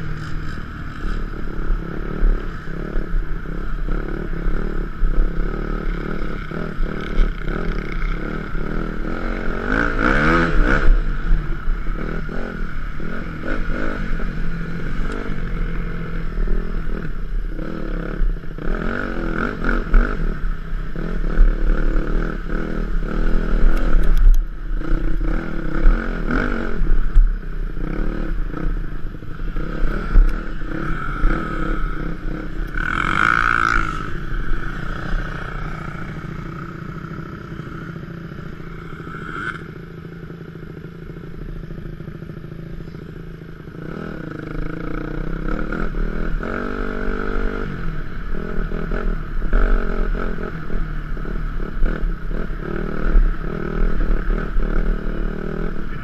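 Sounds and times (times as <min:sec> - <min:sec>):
dirt bike engine revving: 0:00.0 - 0:24.1, 0:27.7 - 0:39.8.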